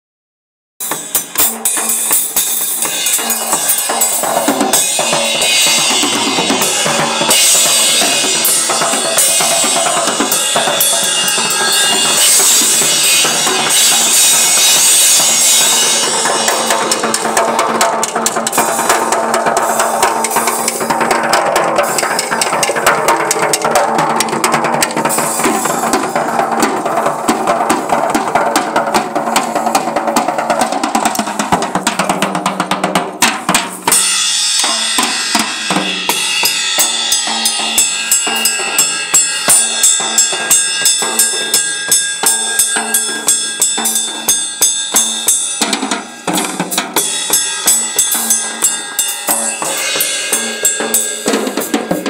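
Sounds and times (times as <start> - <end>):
cymbal wash: 0.8 - 21.1, 33.9 - 52.0.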